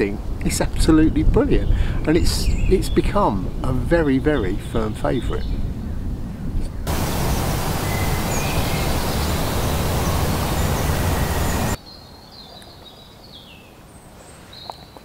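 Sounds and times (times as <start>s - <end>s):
birds chirping: 6.8s - 15.0s
loud outdoor rushing noise: 6.9s - 11.8s.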